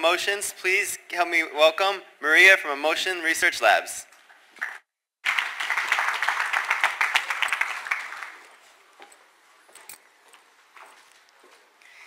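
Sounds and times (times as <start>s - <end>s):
audience applauding: 4.6s - 8.6s.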